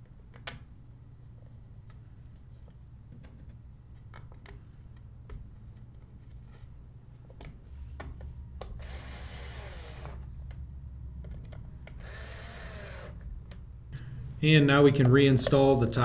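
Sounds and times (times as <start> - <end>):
power screwdriver whining: 8.8 - 10.3, 12.0 - 13.3.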